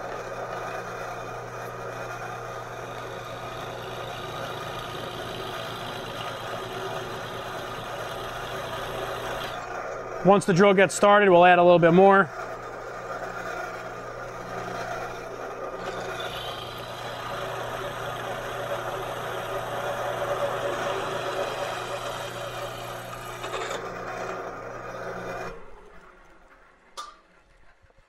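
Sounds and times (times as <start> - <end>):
drill press motor hum: 0.0 - 26.9
drill bit rasping through steel: 1.8 - 9.8, 13.2 - 25.6.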